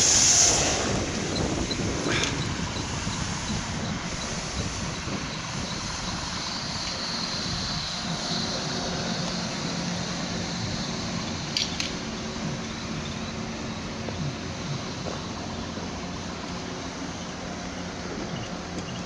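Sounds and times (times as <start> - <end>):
faint high whine: 0.0 - 19.0
train wheels rumbling on rail: 0.0 - 19.0
sharp clicks: 11.5 - 13.3.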